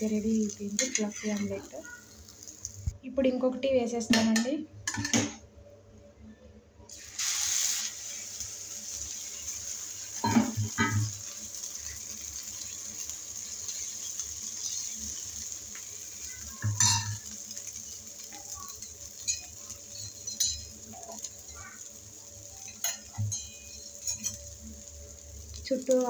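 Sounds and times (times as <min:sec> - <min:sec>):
omelette sizzling on a pan: 0:00.0 - 0:03.0, 0:06.9 - 0:26.0
metal spoon clinking on pan: 0:16.6 - 0:18.0, 0:18.6 - 0:21.8, 0:22.6 - 0:24.5.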